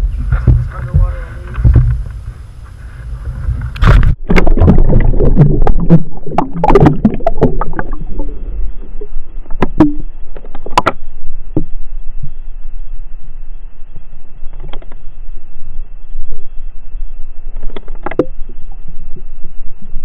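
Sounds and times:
muffled underwater sloshing and knocks: 0:00.0 - 0:11.0.

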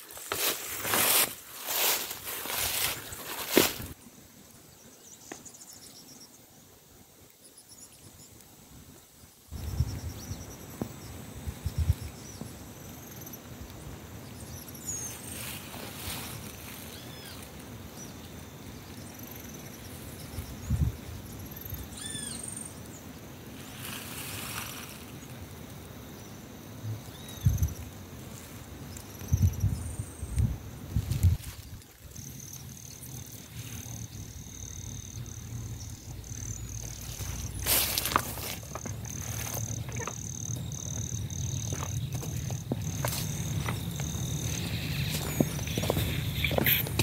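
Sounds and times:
high insect buzz: 0:07.4 - 0:47.0
birds chirping and calling: 0:39.1 - 0:47.0.

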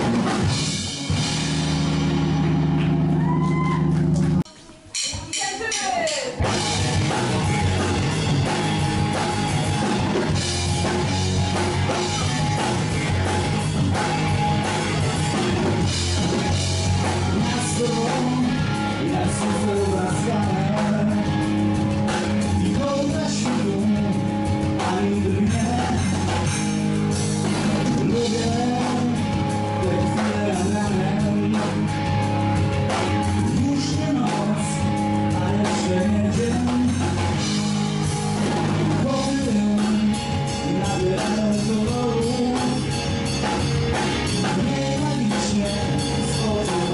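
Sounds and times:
electric guitar: 0:00.0 - 0:04.4, 0:06.4 - 0:46.9
drum kit: 0:00.0 - 0:46.9
rock band playing live: 0:00.0 - 0:46.9
person singing: 0:16.9 - 0:21.4, 0:22.4 - 0:26.4, 0:28.0 - 0:32.0, 0:33.4 - 0:37.2, 0:39.0 - 0:43.0, 0:44.4 - 0:46.9.

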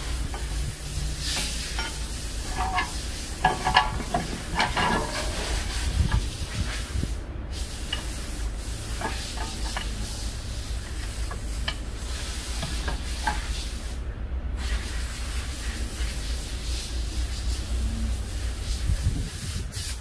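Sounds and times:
metal brake parts clicking: 0:00.0 - 0:06.6, 0:07.8 - 0:13.7
steady low hum and hiss: 0:00.0 - 0:20.0.

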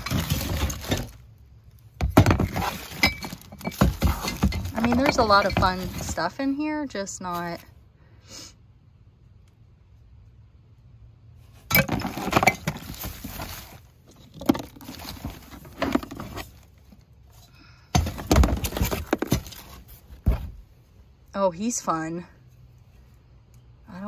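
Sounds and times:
plastic bags crinkling: 0:00.0 - 0:01.2, 0:02.3 - 0:06.2
small items clattering: 0:00.0 - 0:06.4, 0:11.7 - 0:17.1, 0:18.0 - 0:20.4.

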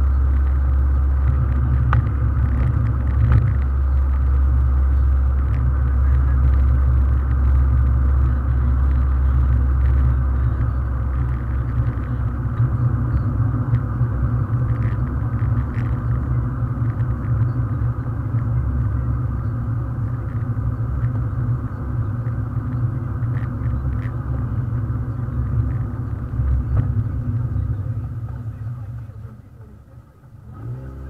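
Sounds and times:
car engine and tyre rumble: 0:00.0 - 0:31.0.

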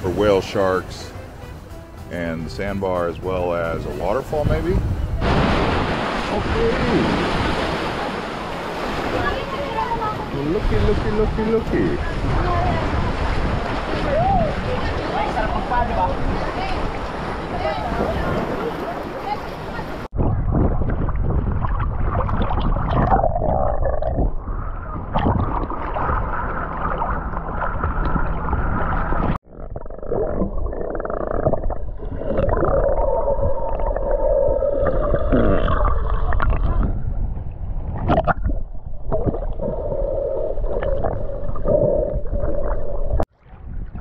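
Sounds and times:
underwater bubbling: 0:11.8 - 0:44.0
low underwater rumble: 0:20.1 - 0:44.0.

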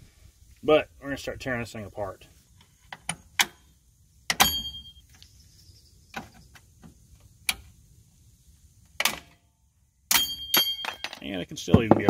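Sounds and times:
metallic clank: 0:10.1 - 0:11.2.

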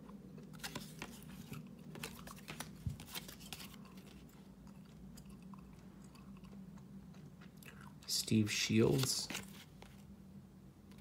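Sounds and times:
cards flicking and rustling: 0:00.6 - 0:04.5, 0:08.8 - 0:10.1.

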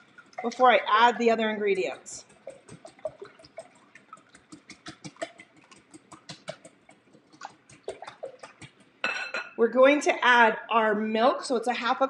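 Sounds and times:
whisk clicking against glass bowl: 0:00.0 - 0:09.5.

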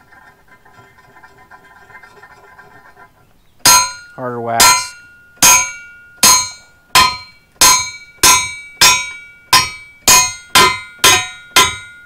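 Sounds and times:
steel ringing: 0:03.6 - 0:12.0
hammer striking steel plate: 0:03.7 - 0:12.0.

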